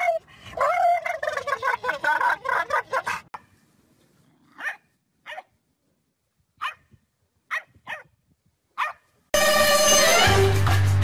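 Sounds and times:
puppy barking high yaps: 4.6s - 5.5s, 6.6s - 6.8s, 7.5s - 8.1s, 8.8s - 9.0s.

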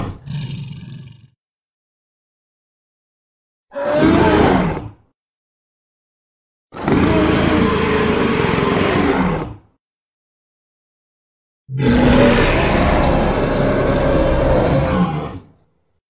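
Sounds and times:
gorilla roar: 3.7s - 5.0s, 6.8s - 9.6s, 11.7s - 15.6s.

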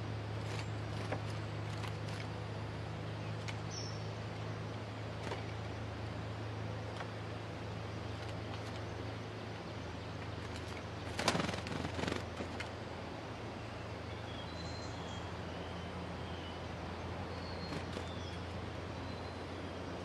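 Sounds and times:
steady low hum: 0.0s - 20.0s
bird rattling chatter: 10.4s - 12.7s.

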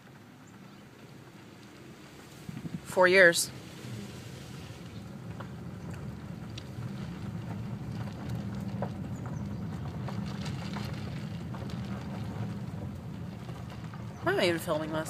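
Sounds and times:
car road and engine rumble: 0.0s - 15.0s
faint ticks and rattles: 4.8s - 15.0s.

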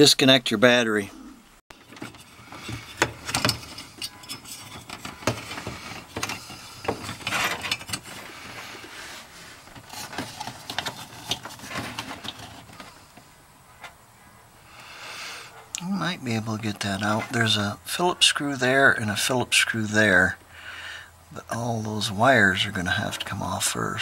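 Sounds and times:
clicks and light rattles: 1.7s - 8.2s
rustling: 1.7s - 14.0s.

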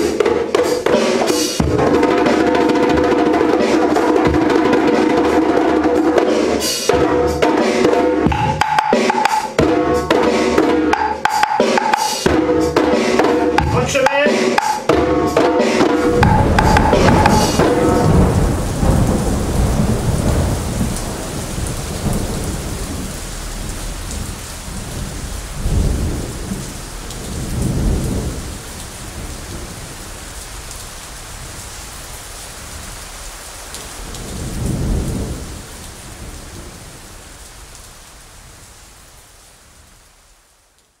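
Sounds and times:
djembe drumming: 0.0s - 19.3s
steady rain: 0.0s - 41.0s
low rolls of thunder: 15.9s - 33.0s, 33.8s - 38.7s.

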